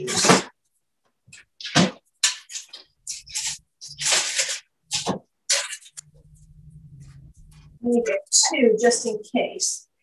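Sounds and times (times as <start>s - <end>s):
rustling crinkling handling noises: 1.3s - 6.4s
low hum: 6.0s - 7.9s.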